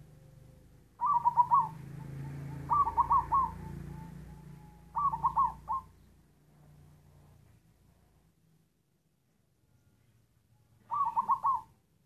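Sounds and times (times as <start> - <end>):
dove cooing: 1.0 - 5.9, 10.8 - 11.8.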